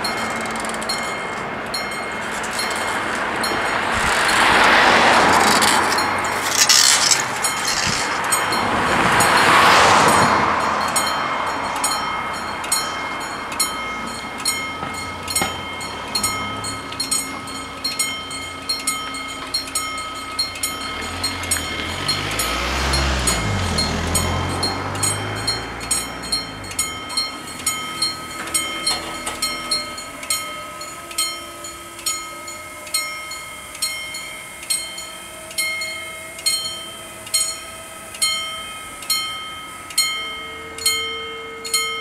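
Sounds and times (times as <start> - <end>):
level-crossing warning bells: 0.0 - 42.0
vehicles passing: 0.0 - 42.0
low motor hum: 12.0 - 33.2.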